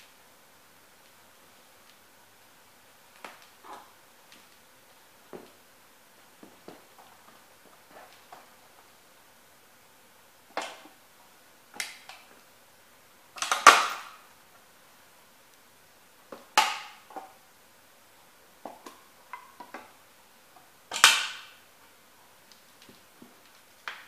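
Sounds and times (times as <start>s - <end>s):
small clicks and snaps: 1.8s - 2.1s, 3.1s - 4.7s, 11.7s - 12.4s, 13.4s - 14.2s, 20.9s - 21.6s, 22.4s - 24.0s.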